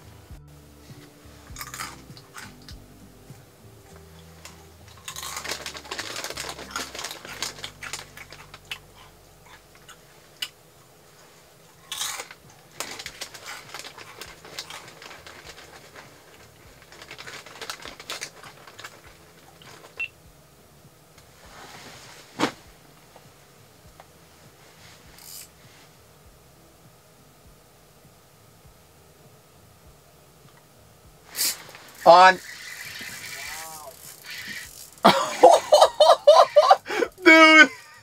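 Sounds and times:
chips being chewed: 1.6s - 2.5s, 4.9s - 10.6s, 11.8s - 20.0s
chip bag crinkling: 4.4s - 9.9s, 11.8s - 20.0s, 31.4s - 37.0s.

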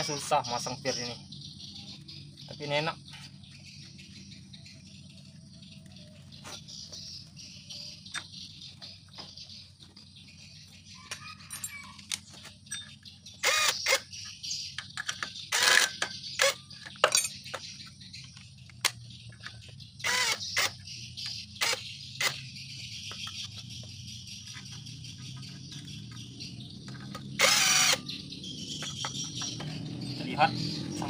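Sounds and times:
metal tools clinking: 11.4s - 13.0s, 16.8s - 17.8s.

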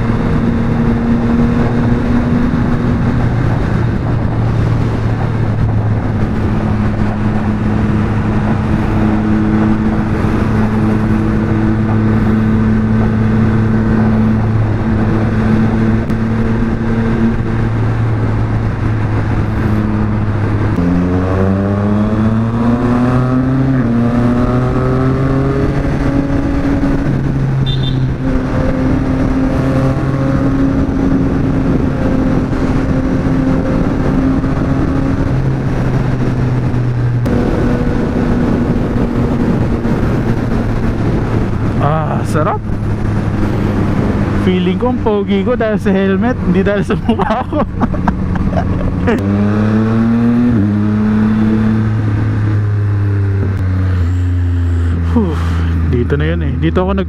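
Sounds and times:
motorcycle engine revving: 0.0s - 57.0s.

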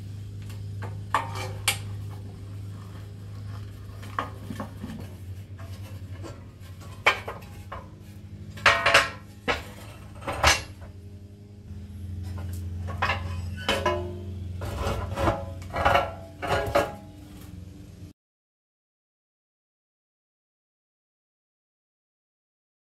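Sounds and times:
steady low hum: 0.0s - 18.1s
metal parts clanking: 3.4s - 11.0s, 12.2s - 17.2s.

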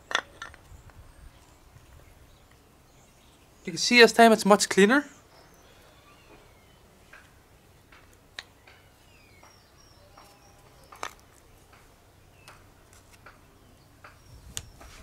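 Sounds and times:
faint bird chirps: 5.0s - 7.2s, 8.5s - 11.6s.

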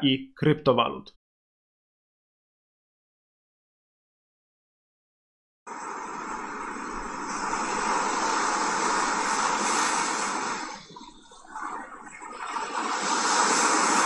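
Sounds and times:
surf washing up a beach: 5.7s - 14.0s.

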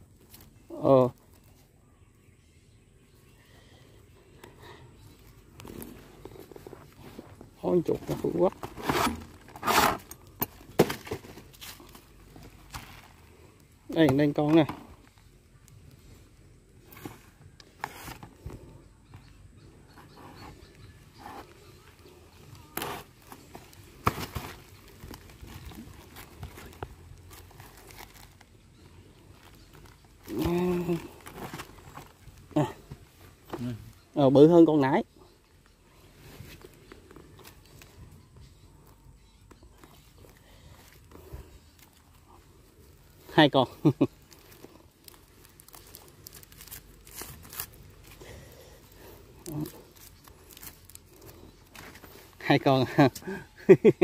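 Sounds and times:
dry leaves rustling: 21.6s - 32.6s, 43.0s - 53.1s.

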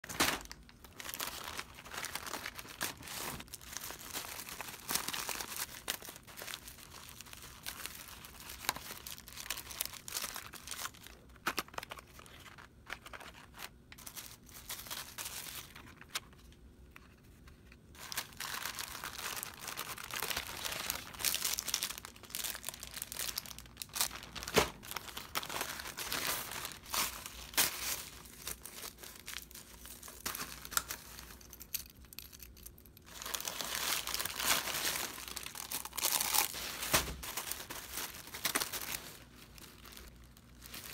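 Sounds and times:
plastic bags crinkling: 0.0s - 16.1s, 17.9s - 40.9s.

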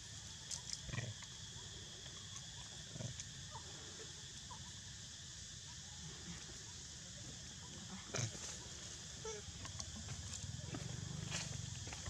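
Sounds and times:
insect buzz: 0.0s - 12.0s.

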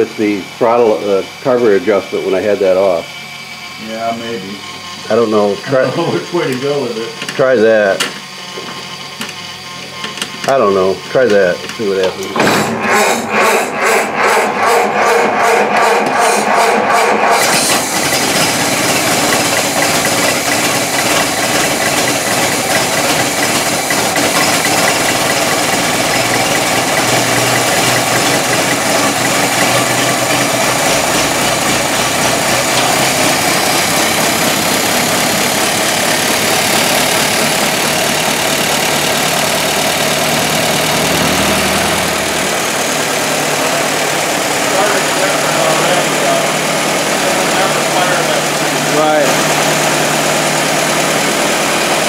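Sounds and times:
car engine idling: 10.9s - 52.0s.

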